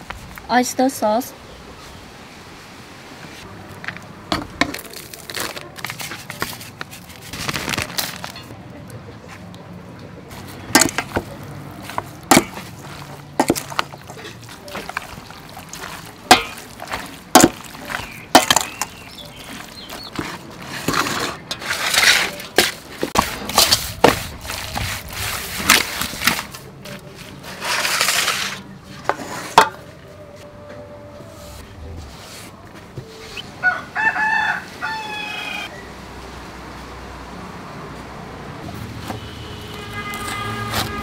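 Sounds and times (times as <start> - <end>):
spoon mixing meat in bowl: 10.4 - 26.5.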